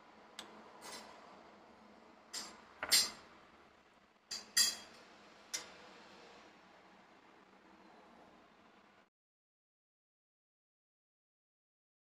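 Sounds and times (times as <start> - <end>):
metal spoon clinking on glass: 4.3 - 5.0.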